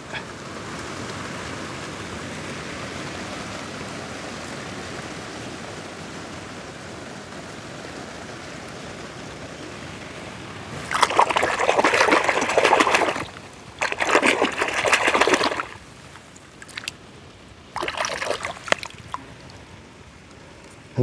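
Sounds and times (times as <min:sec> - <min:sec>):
puddle water splashing: 0:10.7 - 0:17.0, 0:17.7 - 0:19.7.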